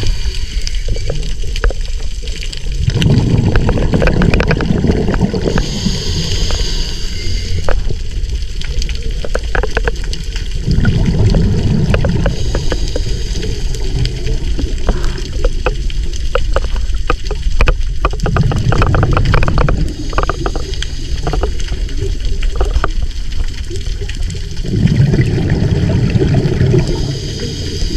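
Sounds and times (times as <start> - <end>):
exhaled bubbles rushing: 0.0 - 6.5, 7.5 - 27.9
underwater noise: 0.0 - 27.9
diver breathing through regulator: 5.3 - 8.0, 12.1 - 14.1, 26.8 - 27.9.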